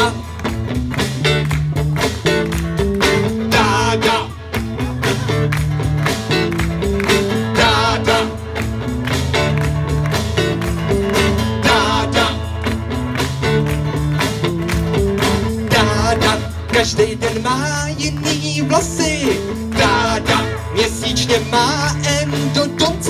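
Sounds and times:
men singing: 0.0s - 0.3s, 3.4s - 5.1s, 7.2s - 8.7s, 11.4s - 12.7s, 15.5s - 23.0s
live band playing: 0.0s - 23.0s.

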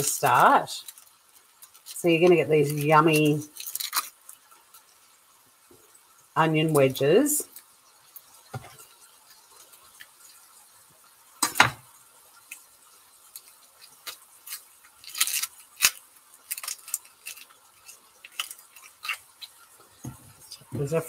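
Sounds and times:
onion skins crackling: 0.0s - 21.0s.

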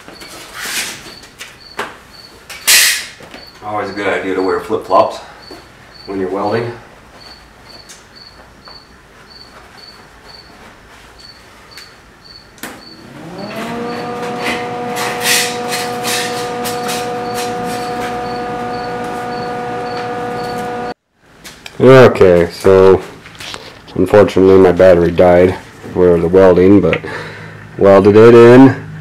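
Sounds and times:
welder humming: 12.9s - 21.0s
welding crackle: 13.9s - 21.0s.

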